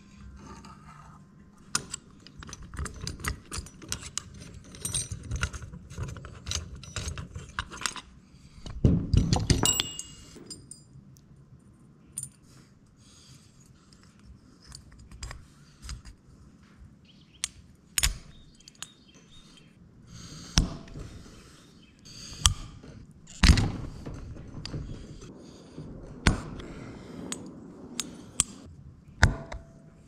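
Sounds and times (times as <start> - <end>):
small metal parts clicking: 1.7 - 8.1, 17.4 - 19.6, 22.3 - 25.3.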